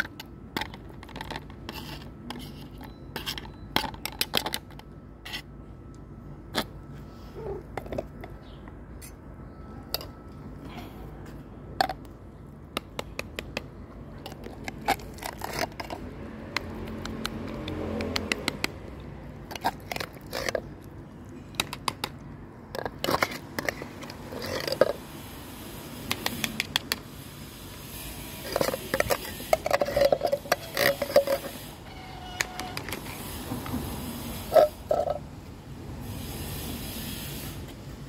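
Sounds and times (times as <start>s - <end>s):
metal spoon scraping tin tray: 28.3s - 33.3s.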